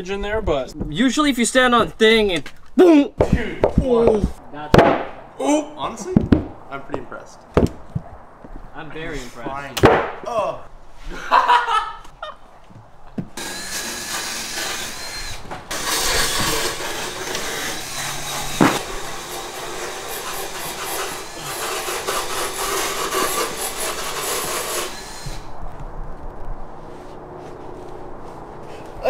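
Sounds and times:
sharp knock: 0:04.7 - 0:05.2, 0:09.8 - 0:10.2
tools rasping and sawing: 0:13.4 - 0:25.5.

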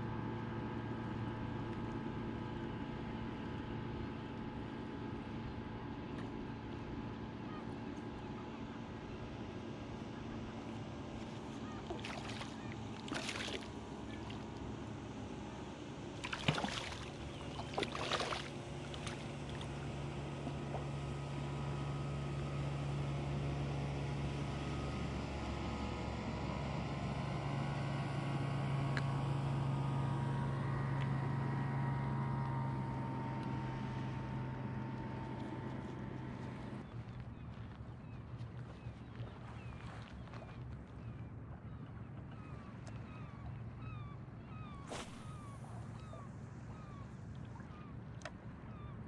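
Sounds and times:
distant boat engine drone: 0:00.0 - 0:49.0
fish splashing in shallow water: 0:11.2 - 0:14.8, 0:16.1 - 0:21.1, 0:44.8 - 0:48.4.

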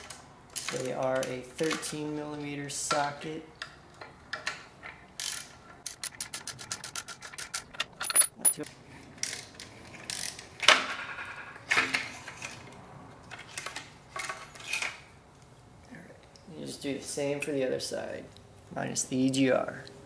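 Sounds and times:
socket ratchet clicking: 0:05.2 - 0:08.6
metal clanks and knocks: 0:06.0 - 0:08.7.

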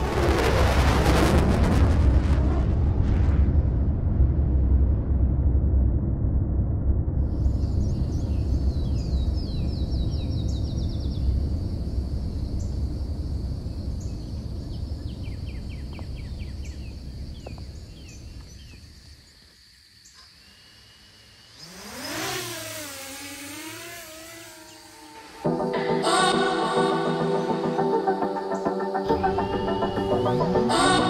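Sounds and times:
wind buffeting microphone: 0:07.0 - 0:19.0
small bird chirping trills: 0:07.5 - 0:11.5, 0:13.7 - 0:25.4
high-pitched tone: 0:25.0 - 0:31.0.

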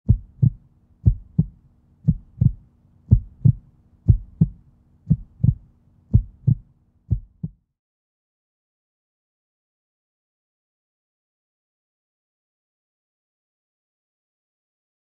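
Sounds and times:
faint steady hum: 0:00.1 - 0:07.6
heartbeat thuds: 0:00.1 - 0:07.6.

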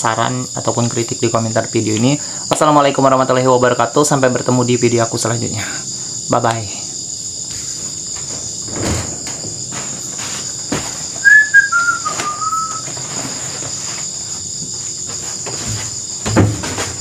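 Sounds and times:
crickets chirping: 0:00.0 - 0:17.0
footsteps on wooden floor: 0:07.4 - 0:17.0
short squeak falling in pitch: 0:11.2 - 0:12.9.

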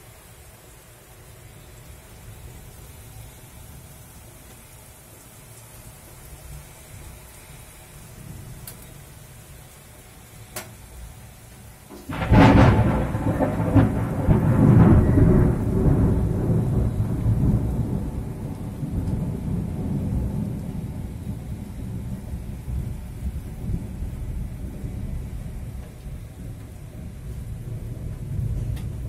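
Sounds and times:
steady rain: 0:00.0 - 0:29.0
thunderclap rolling into rumble: 0:12.0 - 0:29.0.

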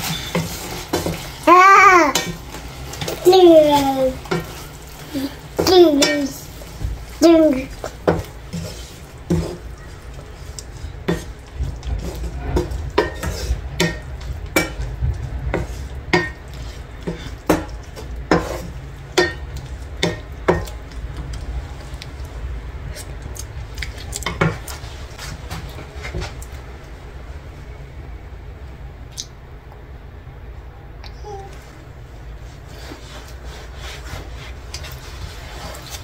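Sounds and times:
utensil scraping frying pan: 0:00.0 - 0:21.8, 0:32.5 - 0:36.0.

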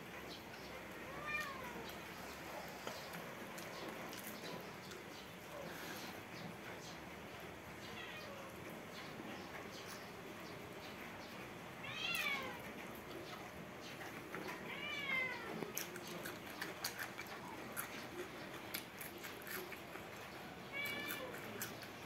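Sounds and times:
cat meowing: 0:00.9 - 0:02.2, 0:07.8 - 0:08.6, 0:11.8 - 0:12.7, 0:14.5 - 0:15.9, 0:20.6 - 0:21.7
wet chewing and lip-smacking: 0:01.8 - 0:05.4, 0:15.5 - 0:22.0.

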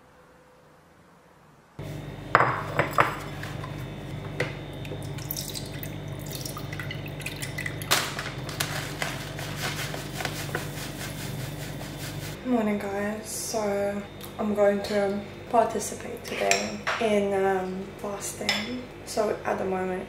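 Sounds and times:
steady low hum: 0:01.8 - 0:20.0
bowl clinking and knocking: 0:02.4 - 0:03.6
milk pouring into a bowl: 0:04.8 - 0:07.9
oats shaken from a bag: 0:08.4 - 0:12.4.

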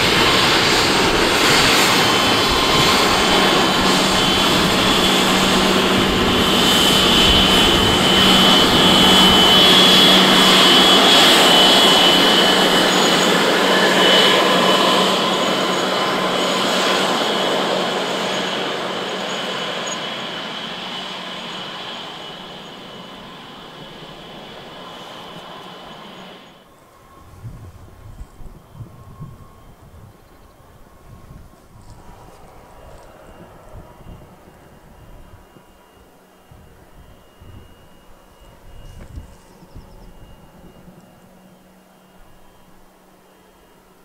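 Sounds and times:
jet taxiing with high whine: 0:00.0 - 0:44.0.

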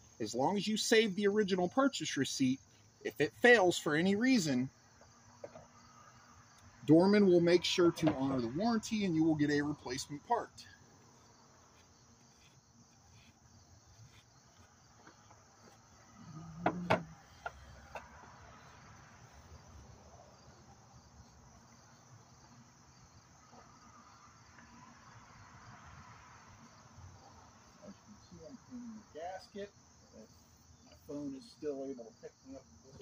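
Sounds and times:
insects chirring: 0:00.0 - 0:33.0
clunk: 0:16.6 - 0:18.1.

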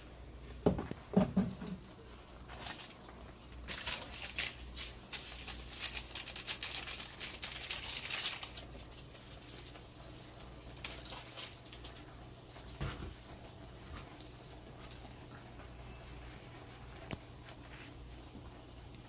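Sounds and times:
low steady hum: 0:00.0 - 0:19.0
stew bubbling and popping: 0:00.6 - 0:03.8.

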